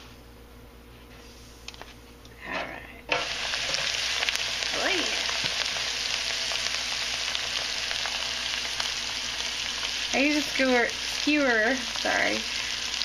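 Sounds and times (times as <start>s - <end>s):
food sizzling in deep fryer oil: 3.1s - 13.0s.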